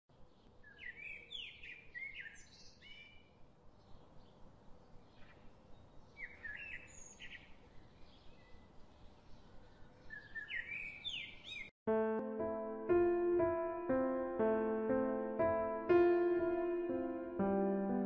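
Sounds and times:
songbirds chirping: 0.1 - 11.7.

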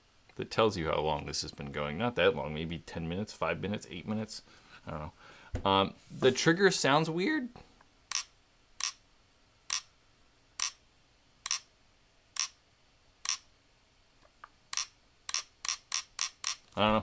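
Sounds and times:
paintball marker trigger clicks: 14.7 - 16.6.

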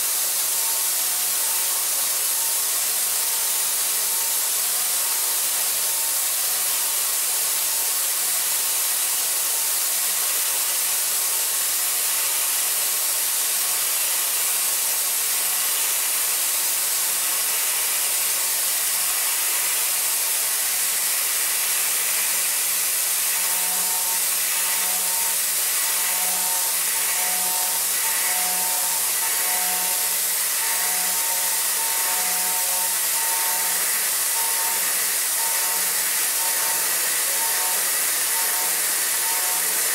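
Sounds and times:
milling machine high hiss: 13.9 - 39.9.

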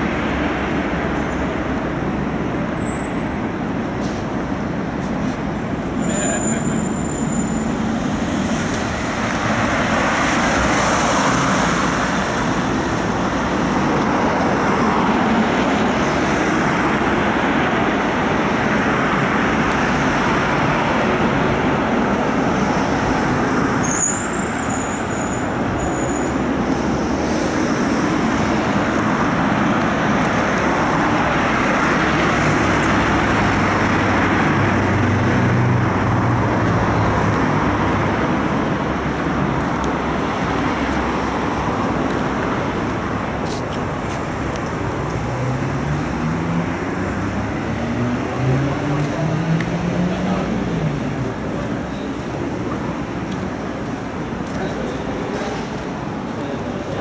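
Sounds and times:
passing cars: 0.0 - 57.0
brief high squeal: 6.0 - 7.7, 23.8 - 26.3.

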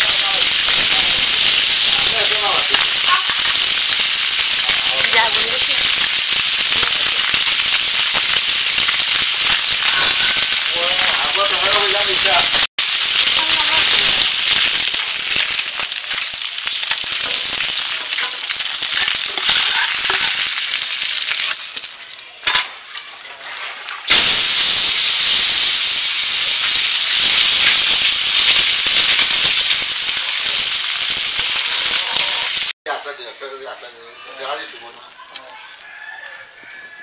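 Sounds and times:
fish sizzling in hot oil: 0.0 - 32.8.

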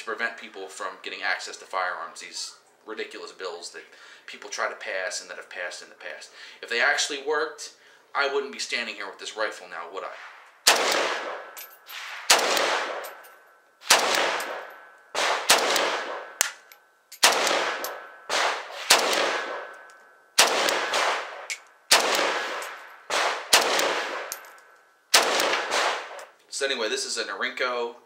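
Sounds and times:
rifle shots with echo: 10.0 - 13.2, 13.8 - 24.5, 25.1 - 26.3.

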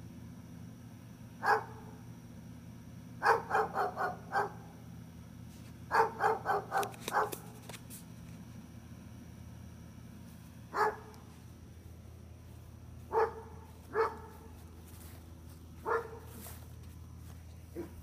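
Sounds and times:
dog barking: 1.4 - 2.0, 3.2 - 4.7, 5.9 - 7.5, 10.7 - 11.2, 13.1 - 14.6, 15.8 - 16.3, 17.8 - 18.0.

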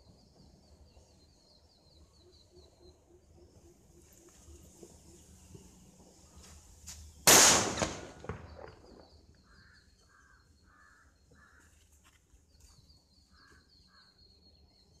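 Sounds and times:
firecracker blast: 7.2 - 9.2
crow cawing: 9.5 - 11.8.

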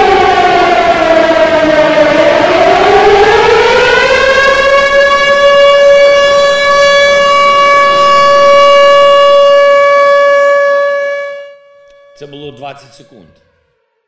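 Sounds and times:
air-raid siren wailing: 0.0 - 14.0.

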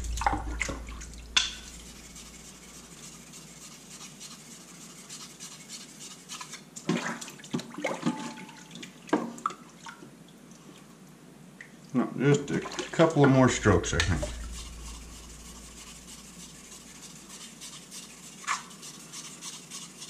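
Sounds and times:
water running in a sink: 0.0 - 3.8, 12.2 - 20.0.

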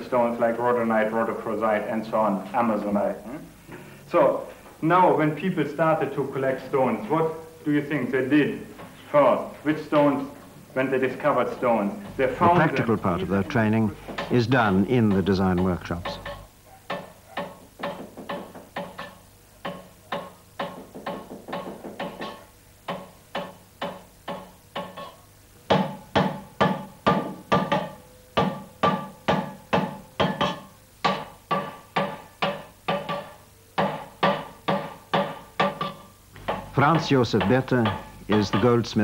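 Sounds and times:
hammer striking metal bowl: 12.0 - 39.0.

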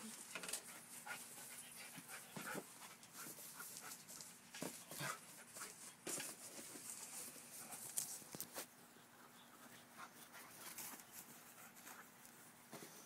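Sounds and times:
dogs scuffling: 0.5 - 8.7, 10.0 - 13.0
dogs panting: 0.6 - 6.0.

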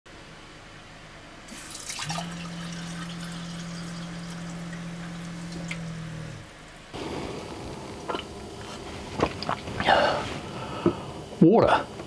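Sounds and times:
steady low hum: 0.1 - 12.0
water running and splashing: 1.5 - 5.9.

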